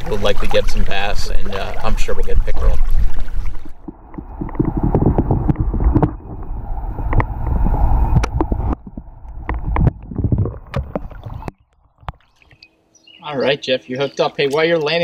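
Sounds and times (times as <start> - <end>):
underwater rumble: 0.0 - 12.6
underwater clicks and knocks: 2.4 - 12.7.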